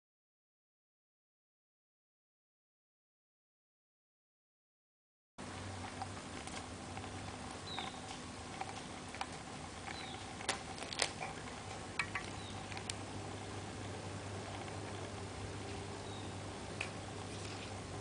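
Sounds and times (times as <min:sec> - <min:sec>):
low hum: 0:05.4 - 0:18.0.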